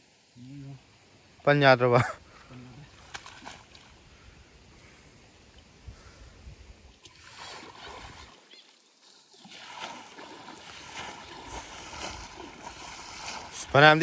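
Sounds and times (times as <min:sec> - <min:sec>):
mud and water splashing: 0:02.3 - 0:04.1, 0:07.0 - 0:14.0
shovel working mud: 0:09.4 - 0:14.0.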